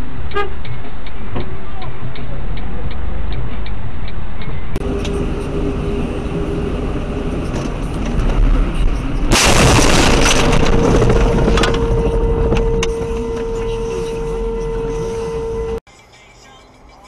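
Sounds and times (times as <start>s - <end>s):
road and engine noise: 0.0s - 17.0s
steady tone: 4.5s - 15.8s
car crash impact: 9.3s - 13.6s.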